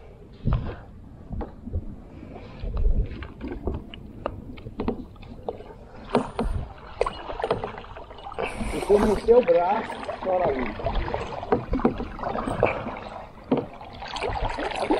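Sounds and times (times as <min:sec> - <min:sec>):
water lapping against hull: 0:00.0 - 0:14.9
knocks and clicks on kayak: 0:03.5 - 0:08.0, 0:10.4 - 0:14.2.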